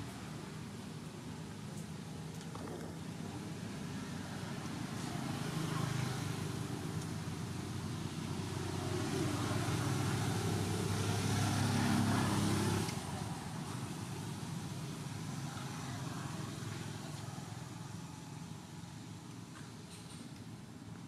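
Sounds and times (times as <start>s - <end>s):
vehicle engine passing: 2.5s - 14.7s.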